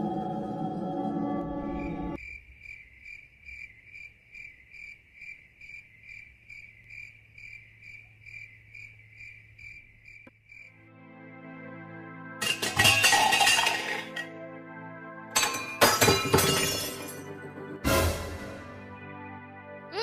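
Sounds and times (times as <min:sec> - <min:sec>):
cricket chirping: 0:01.6 - 0:10.8.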